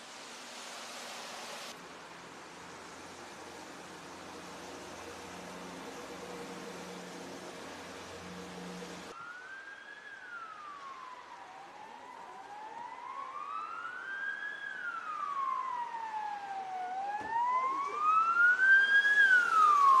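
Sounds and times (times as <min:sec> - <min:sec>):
emergency vehicle sirens wailing: 0:03.5 - 0:20.0.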